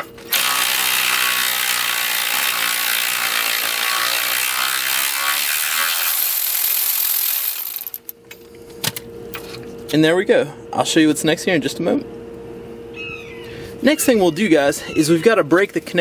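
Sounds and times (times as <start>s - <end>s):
electric ratchet whirring: 0.0s - 8.1s.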